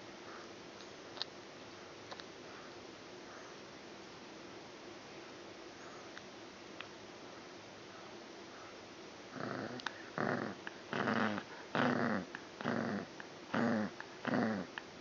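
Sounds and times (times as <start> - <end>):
puppy play-growling: 9.3 - 14.8.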